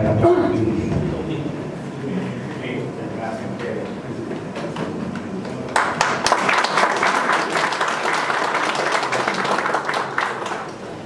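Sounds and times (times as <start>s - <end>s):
audience applauding: 4.7s - 11.0s.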